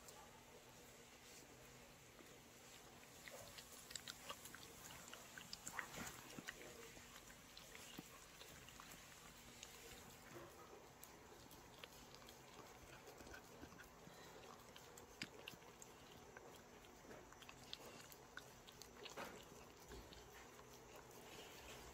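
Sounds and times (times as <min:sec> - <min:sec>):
dogs licking and chewing: 0:02.2 - 0:21.9.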